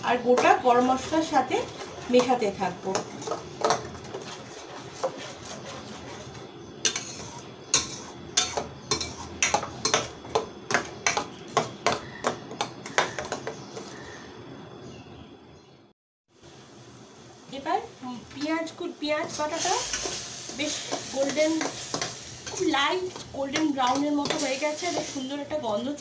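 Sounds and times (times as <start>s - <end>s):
paste sizzling in hot oil: 0.0s - 11.7s, 16.4s - 26.0s
spatula knocking and scraping pan: 0.0s - 14.1s, 19.2s - 25.3s.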